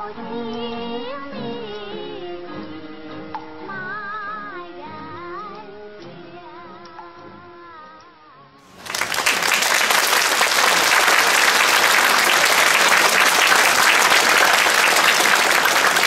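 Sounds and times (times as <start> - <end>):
person singing: 0.0 - 2.9
audience applause: 8.7 - 16.0.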